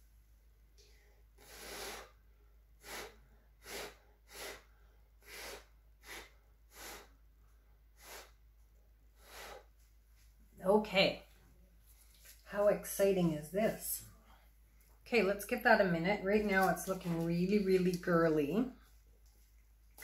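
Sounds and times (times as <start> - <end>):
person blowing through pursed lips: 1.4 - 7.3, 7.9 - 8.4, 9.2 - 9.8.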